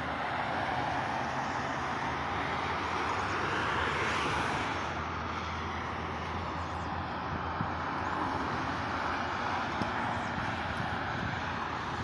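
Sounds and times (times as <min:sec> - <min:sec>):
tyre hiss of passing cars: 0:00.0 - 0:12.0.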